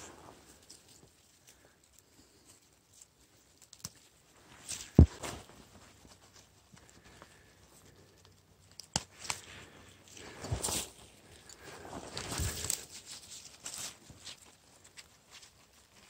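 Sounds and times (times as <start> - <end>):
leaves and twigs rustling: 0.0 - 16.0.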